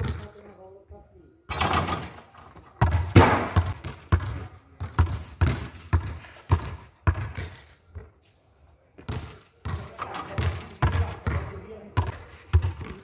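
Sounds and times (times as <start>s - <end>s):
basketball bouncing on court: 2.8s - 7.5s, 9.0s - 13.0s.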